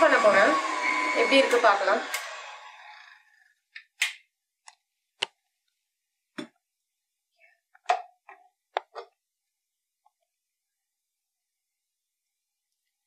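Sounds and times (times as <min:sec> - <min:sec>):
mixer whirring: 0:00.0 - 0:04.0.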